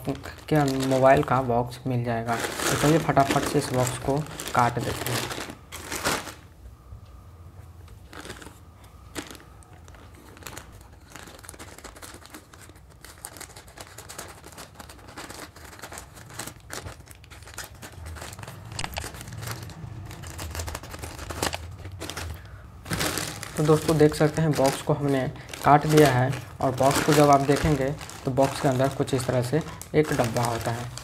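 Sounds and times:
plastic bag crinkling: 0.0s - 6.5s, 7.9s - 31.0s.

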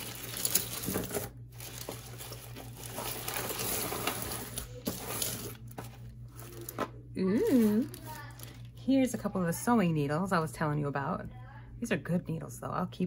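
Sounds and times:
plastic bag rustling and crinkling: 0.0s - 9.0s.

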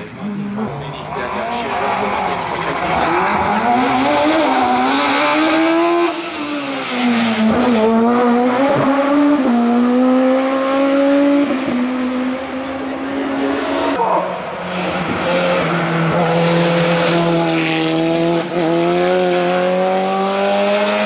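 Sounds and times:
car engine accelerating hard: 0.0s - 21.0s.

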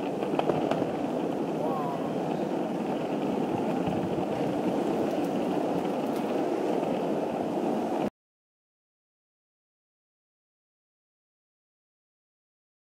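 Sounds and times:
skateboard wheels rolling on pavement: 0.0s - 8.1s.

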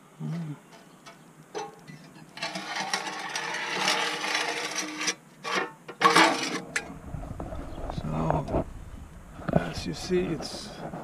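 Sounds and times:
metal tray scraping and rattling: 1.1s - 7.0s.

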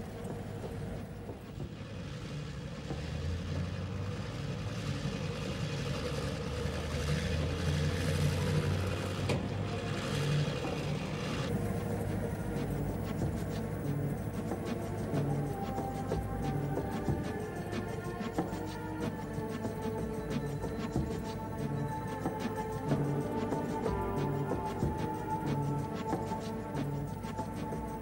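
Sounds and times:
car engine and road rumble: 0.0s - 28.0s.

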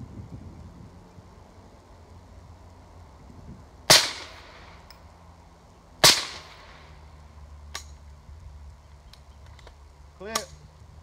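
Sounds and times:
rifle shots: 3.9s - 4.7s, 6.0s - 6.9s.

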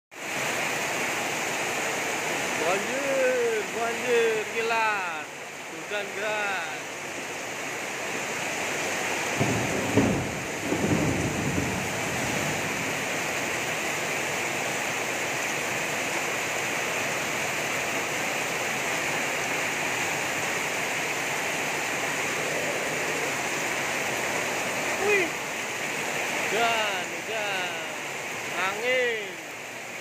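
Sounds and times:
heavy rain: 0.1s - 30.0s
thunder rumbling: 9.3s - 13.4s.

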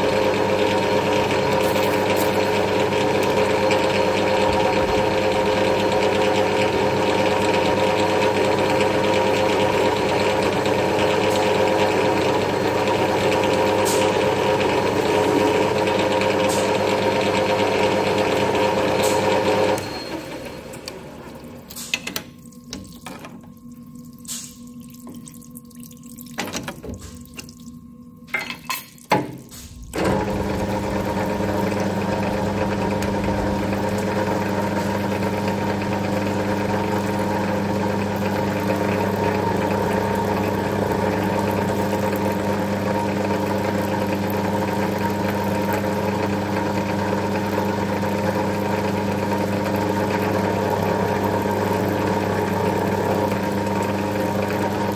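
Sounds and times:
metal lathe running: 29.8s - 42.2s.

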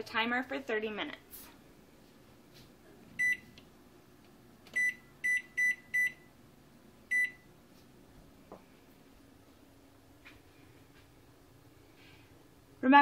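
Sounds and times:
short high oven beeps: 3.2s - 3.5s, 4.7s - 6.3s, 7.1s - 7.5s.

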